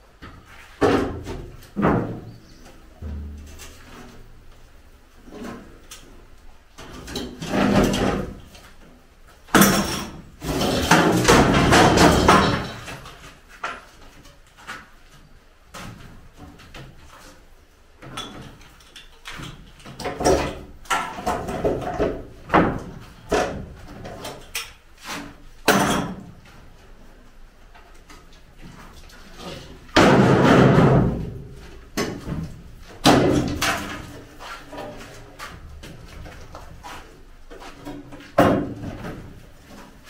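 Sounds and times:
wooden boards knocking and clattering: 0.2s - 4.2s, 6.8s - 8.7s, 9.5s - 14.9s, 19.3s - 26.4s, 28.2s - 36.9s, 37.5s - 40.0s.

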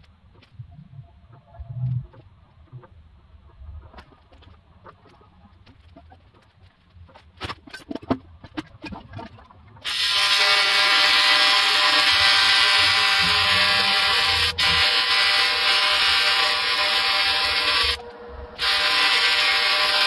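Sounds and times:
welding arc buzzing: 9.8s - 20.0s.

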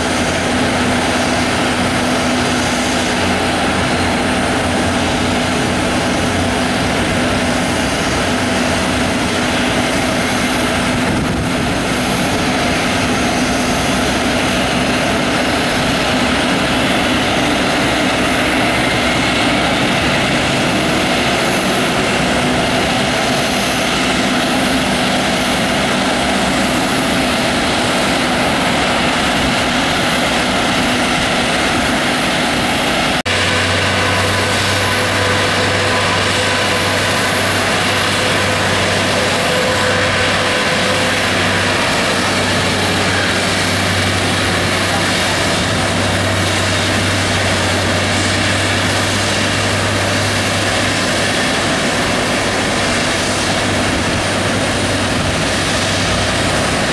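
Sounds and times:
jet engines idling: 0.0s - 56.9s.

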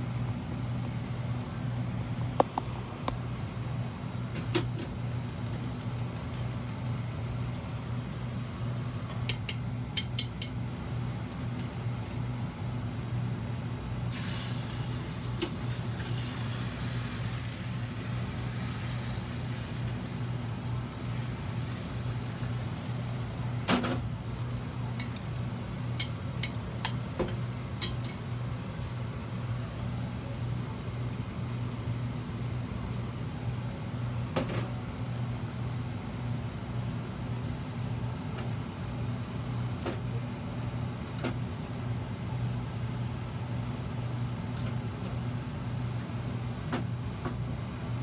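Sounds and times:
low machine hum: 0.0s - 48.0s
egg sizzling in frying pan: 14.1s - 23.4s.

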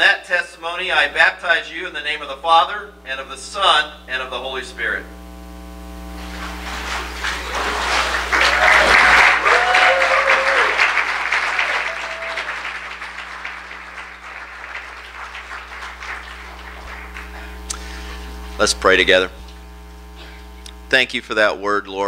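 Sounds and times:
crowd applauding and cheering: 6.2s - 17.7s
voices calling out: 6.6s - 13.0s.

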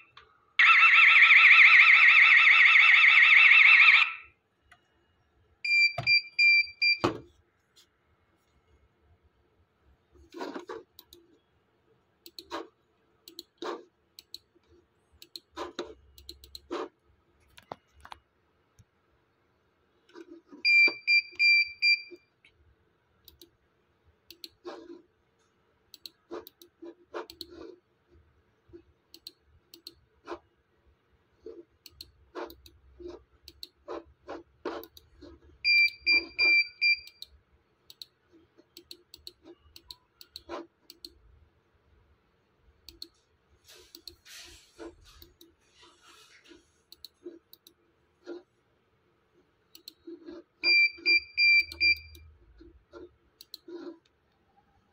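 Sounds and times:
computer mouse clicking: 10.2s - 11.4s, 12.2s - 18.2s, 23.2s - 23.6s, 24.3s - 25.0s, 25.9s - 27.8s, 28.7s - 30.4s, 31.6s - 41.2s, 42.8s - 43.2s, 43.9s - 44.2s, 46.9s - 48.4s, 49.7s - 50.4s, 51.6s - 54.4s.

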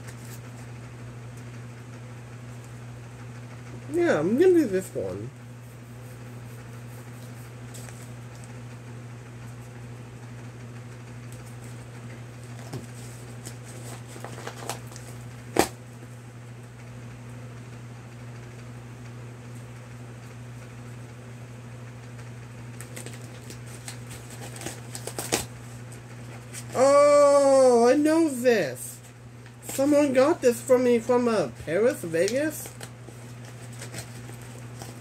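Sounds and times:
paper wrapping crinkling: 12.4s - 15.7s, 22.8s - 26.8s, 31.6s - 35.0s
sharp paper snap: 13.4s - 15.8s, 22.8s - 25.5s.

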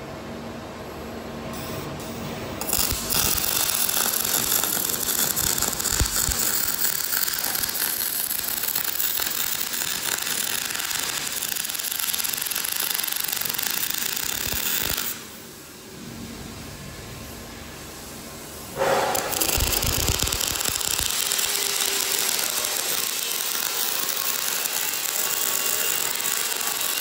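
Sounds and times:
welding arc crackling: 2.6s - 15.2s, 18.8s - 27.0s.

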